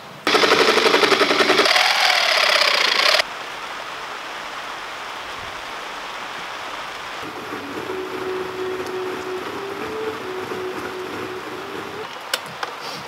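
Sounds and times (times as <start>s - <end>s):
reciprocating saw cutting bolts: 0.3s - 3.2s
steady hiss: 2.6s - 13.0s.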